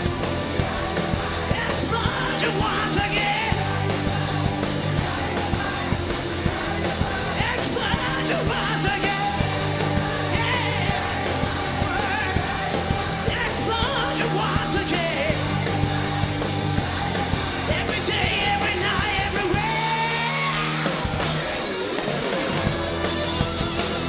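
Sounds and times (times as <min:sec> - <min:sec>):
rock band playing: 0:00.0 - 0:24.0
man singing: 0:01.4 - 0:06.2, 0:07.2 - 0:20.9.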